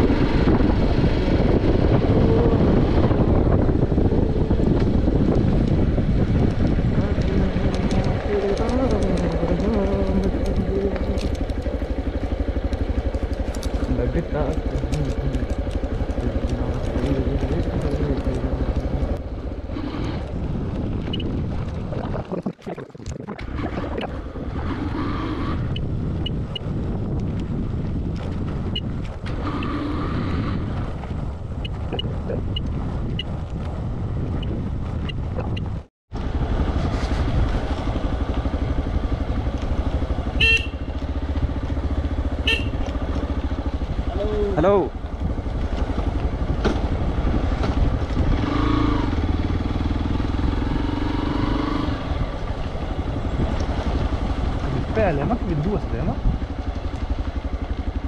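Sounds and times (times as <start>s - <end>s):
motorcycle engine running: 0.0s - 21.9s, 23.1s - 58.0s.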